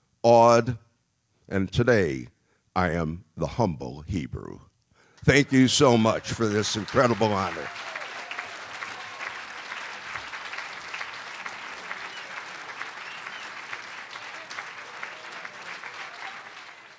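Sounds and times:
audience applauding: 5.3 - 16.9.

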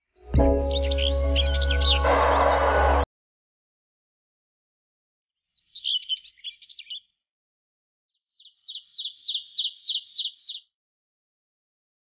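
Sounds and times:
small songbird chirping: 0.4 - 2.0, 5.4 - 7.2, 8.2 - 10.7.

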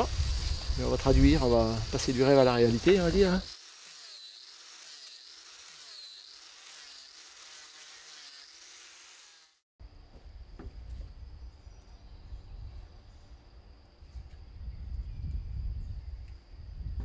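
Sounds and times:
insect chorus chirring: 0.0 - 3.6.

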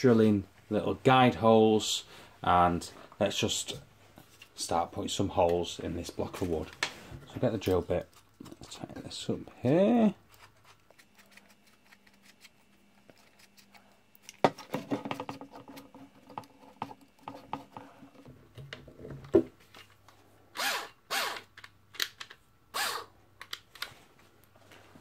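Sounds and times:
low drill whirr: 20.6 - 21.5, 22.7 - 23.1.

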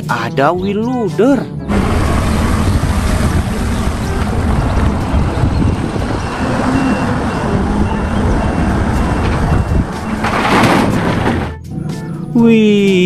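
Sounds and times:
diesel engine running: 1.7 - 12.0
reversing alarm beeps: 4.6 - 10.5.

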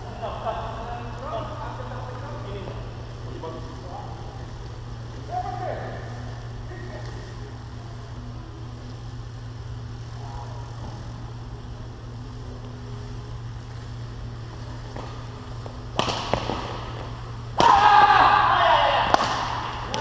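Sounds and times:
steady low hum: 0.0 - 20.0
racket hitting shuttlecock: 15.9 - 16.8, 19.0 - 20.0
people shouting: 17.6 - 20.0.

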